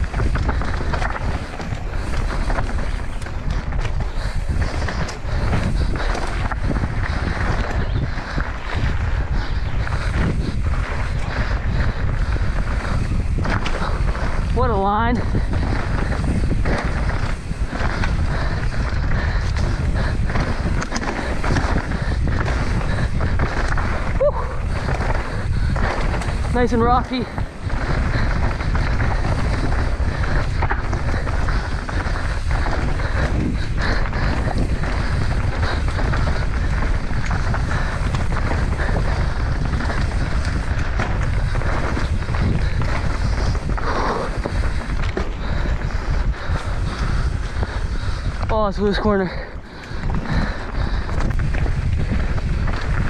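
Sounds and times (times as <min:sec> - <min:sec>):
bike knocks and rattles: 0:00.0 - 0:48.9
bike tyres rolling on dirt: 0:00.0 - 0:53.0
wind buffeting microphone: 0:00.0 - 0:53.0.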